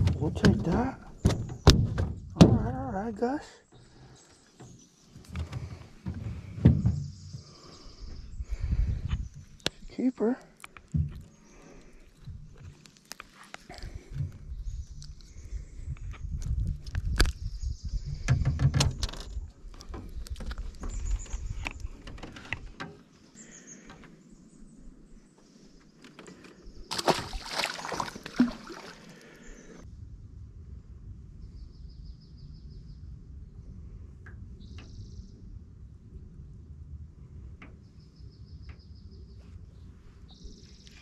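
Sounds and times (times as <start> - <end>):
knocks against aluminum boat: 0.0 - 2.8, 5.4 - 7.2
fish splashing into water: 26.9 - 29.8.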